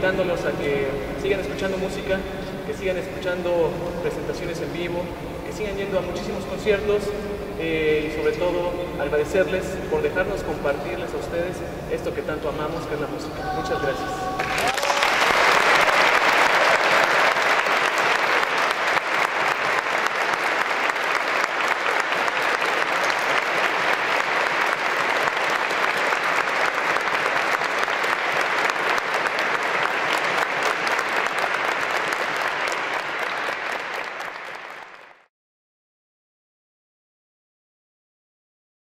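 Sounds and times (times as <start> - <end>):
audience applauding: 13.7 - 35.3.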